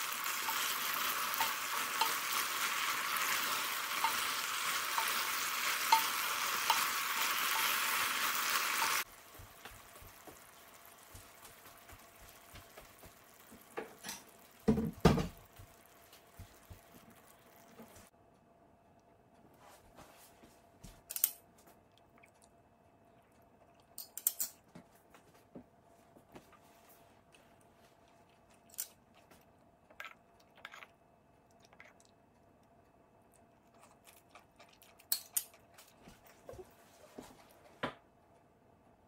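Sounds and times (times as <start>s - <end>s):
faint steady hum: 13.8s - 39.0s.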